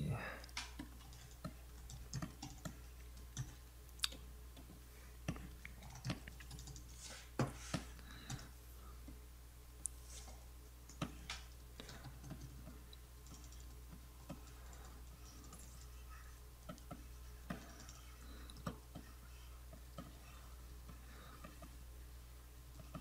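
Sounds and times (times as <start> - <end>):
computer keys clicking: 0.4 - 4.7, 5.3 - 6.9, 10.9 - 16.0, 16.6 - 19.1.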